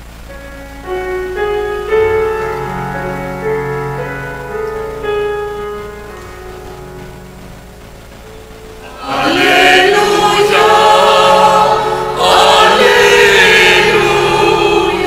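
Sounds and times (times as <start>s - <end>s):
keyboard playing held chords: 0.0s - 15.0s
choir singing: 8.8s - 15.0s.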